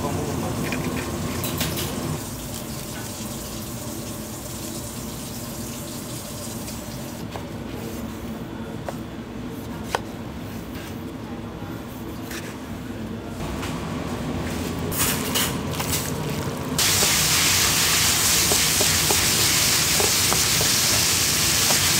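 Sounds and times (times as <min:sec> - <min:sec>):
tap water running into sink: 0:16.8 - 0:21.9.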